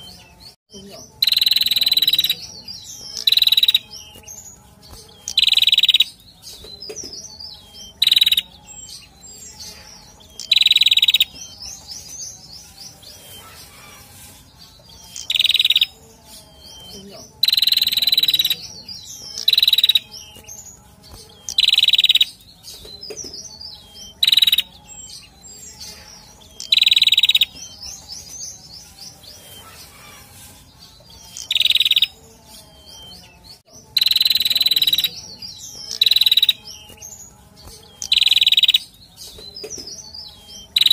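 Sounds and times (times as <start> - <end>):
bird chirping shrilly: 1.2 - 4.2, 5.2 - 6.3, 7.5 - 20.4, 21.1 - 22.4, 23.7 - 24.8, 25.6 - 32.2, 33.9 - 37.0, 37.7 - 39.0, 40.1 - 40.9.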